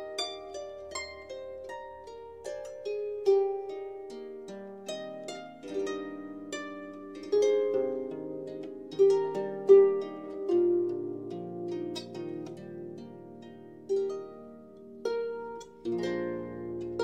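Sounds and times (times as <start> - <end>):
calm plucked string melody: 0.0 - 17.0.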